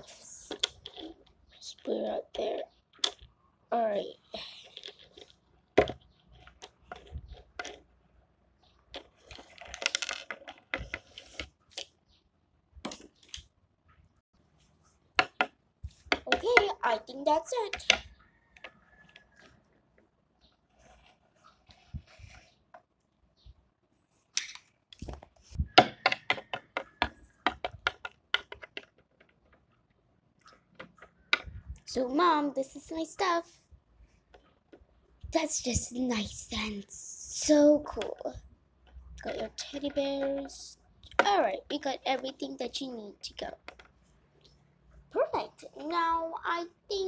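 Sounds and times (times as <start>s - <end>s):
toys clattering: 8.9s - 12.0s, 24.4s - 29.7s, 37.4s - 42.4s
plastic toys knocking on wood: 15.2s - 16.8s, 25.0s - 29.4s.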